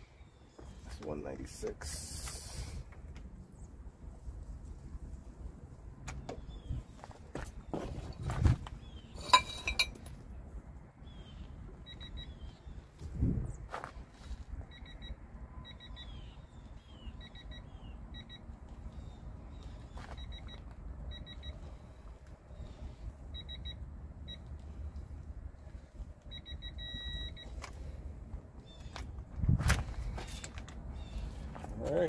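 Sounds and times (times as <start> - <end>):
steady low rumble: 2.0 - 32.0
high electronic beeps: 14.7 - 16.3, 17.0 - 18.4, 26.3 - 27.6.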